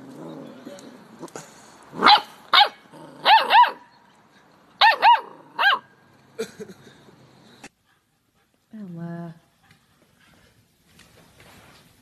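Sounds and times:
puppy barking high-pitched yips: 2.0s - 4.0s, 4.8s - 5.9s.

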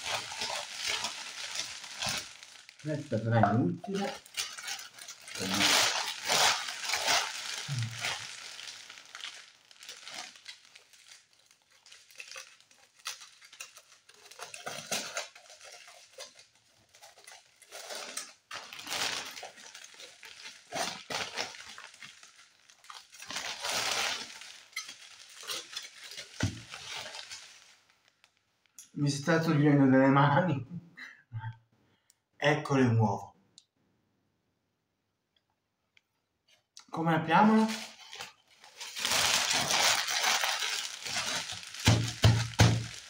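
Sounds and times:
foil crumpling: 0.0s - 28.1s, 37.4s - 43.0s
plastic wrapper crinkling: 0.0s - 28.8s, 37.3s - 43.0s.

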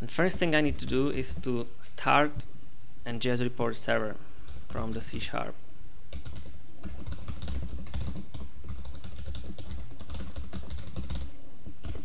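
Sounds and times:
typing on computer keyboard: 6.1s - 12.0s.

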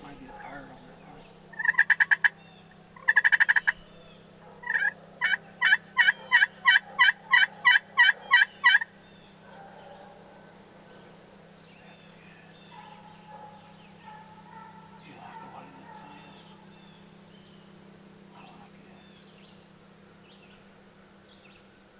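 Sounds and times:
turkey call yelps: 0.0s - 11.1s, 11.8s - 17.8s
turkey call rattling burst: 1.5s - 2.4s, 3.0s - 3.8s, 4.6s - 8.9s.

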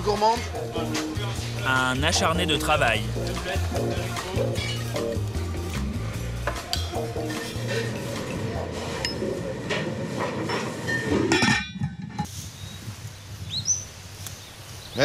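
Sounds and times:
outdoor ambience: 0.0s - 15.0s
dishes and utensils clattering: 6.4s - 12.3s.

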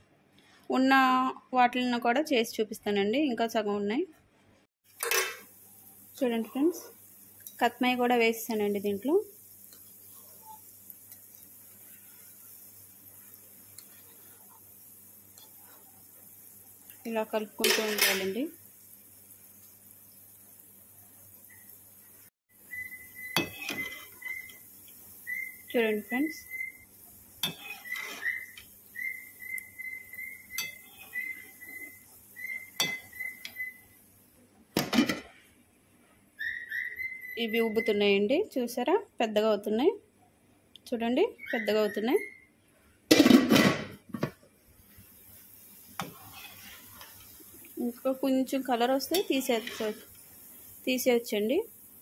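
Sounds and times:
oil sizzling: 4.8s - 35.7s, 43.1s - 52.0s
metal spoon clinking on pan: 17.6s - 18.4s, 27.4s - 28.2s, 30.6s - 30.9s, 32.8s - 33.1s.

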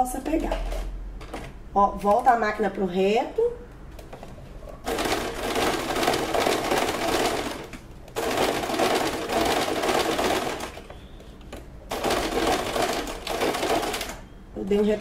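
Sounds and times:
sewing machine stitching: 4.9s - 11.0s, 11.9s - 14.3s.

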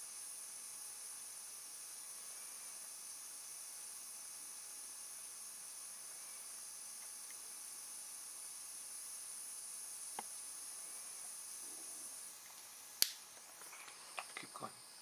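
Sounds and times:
butane torch hissing: 0.0s - 15.0s
sharp click: 13.0s - 13.2s.

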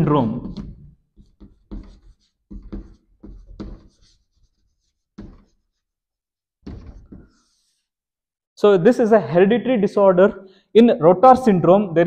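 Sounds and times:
chalk scratching on chalkboard: 0.5s - 6.0s, 7.2s - 7.9s.

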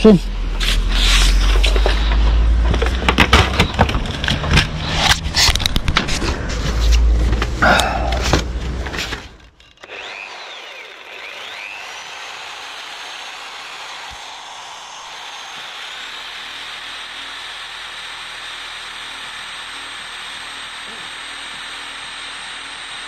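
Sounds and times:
clattering knocks and scraping: 1.4s - 7.6s, 8.2s - 9.8s.

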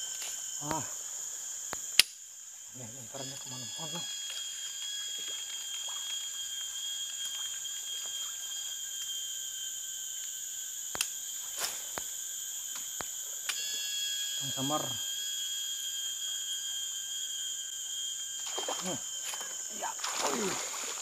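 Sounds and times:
insect chorus: 0.0s - 21.0s
sharp clicks: 1.7s - 2.2s.

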